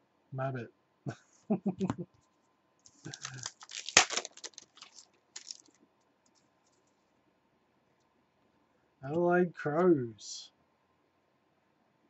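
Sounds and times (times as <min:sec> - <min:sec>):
trading cards shuffled: 0:02.9 - 0:06.8.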